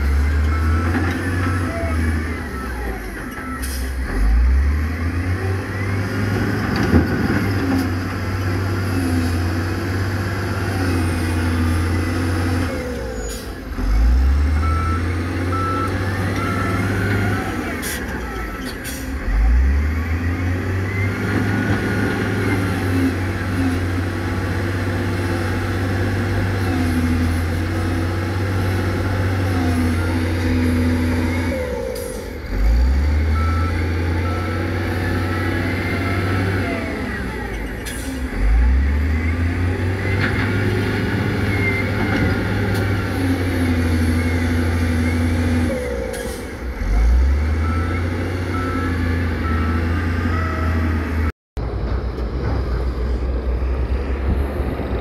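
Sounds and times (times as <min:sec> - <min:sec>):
diesel truck engines running: 0:00.0 - 0:55.0
reversing alarm beeping: 0:00.1 - 0:06.4, 0:11.4 - 0:22.7, 0:29.6 - 0:39.8, 0:43.8 - 0:51.3.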